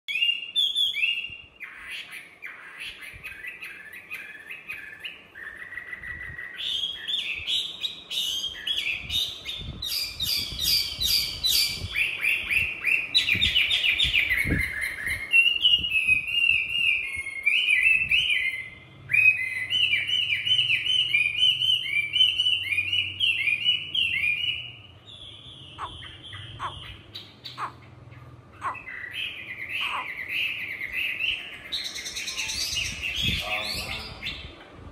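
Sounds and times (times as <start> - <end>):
bird singing whistled trills: 0.1 - 34.5.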